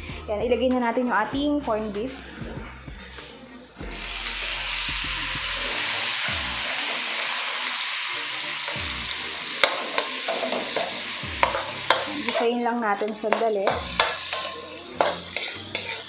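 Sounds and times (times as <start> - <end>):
meat sizzling in hot oil: 3.8 - 16.0
metal spatula scraping a wok: 9.6 - 16.0.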